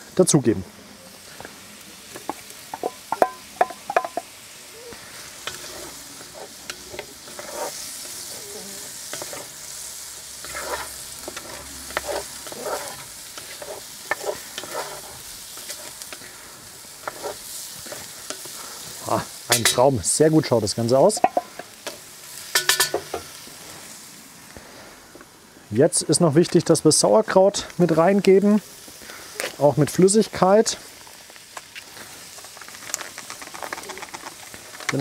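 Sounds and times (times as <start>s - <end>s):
bacon and onions sizzling: 0.0s - 35.0s
sharp clinks on cast iron pot: 2.7s - 4.3s, 21.1s - 21.7s, 22.5s - 23.2s
wooden spatula scraping pot: 5.4s - 9.5s, 10.4s - 16.3s, 17.0s - 18.6s.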